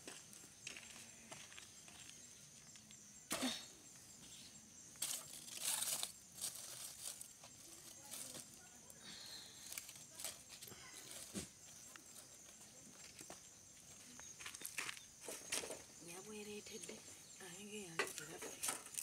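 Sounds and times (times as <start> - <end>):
leaves and firewood rustling: 4.9 - 17.0, 17.6 - 19.0.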